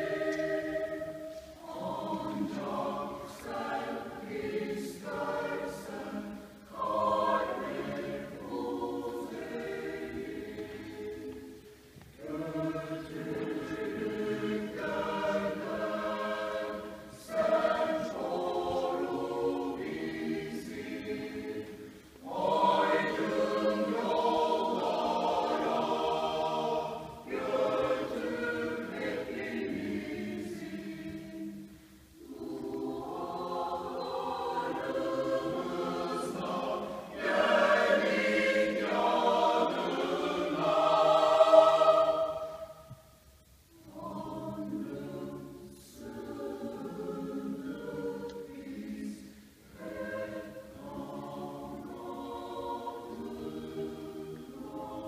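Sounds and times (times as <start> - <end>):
mixed choir singing unaccompanied: 0.0 - 55.0.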